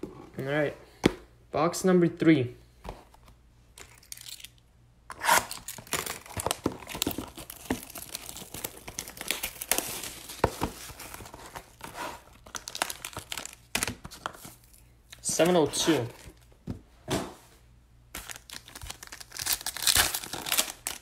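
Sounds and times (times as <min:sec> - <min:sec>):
shrink-wrap tearing and crinkling: 0:03.8 - 0:14.8, 0:18.1 - 0:21.0
cardboard rustling: 0:05.8 - 0:14.6.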